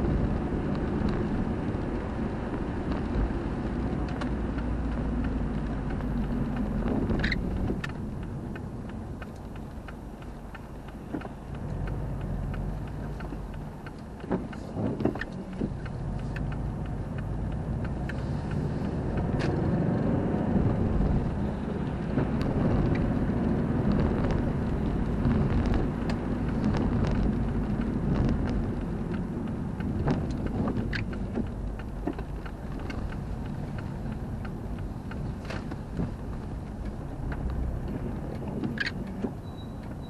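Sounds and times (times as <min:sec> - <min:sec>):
car engine and tyre rumble: 0:00.0 - 0:40.0
raindrops ticking on windshield: 0:00.0 - 0:40.0.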